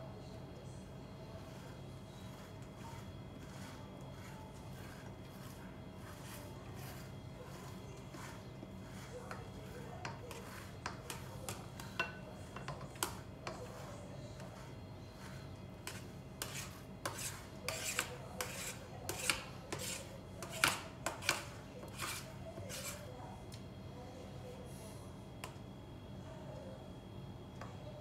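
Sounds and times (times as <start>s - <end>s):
utensil scraping a dish: 1.1s - 23.2s.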